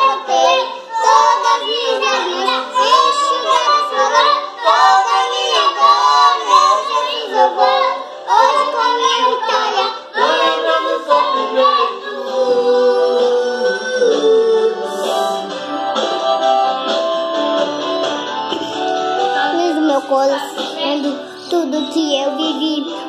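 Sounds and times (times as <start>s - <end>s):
children singing gospel song: 0.0s - 16.7s.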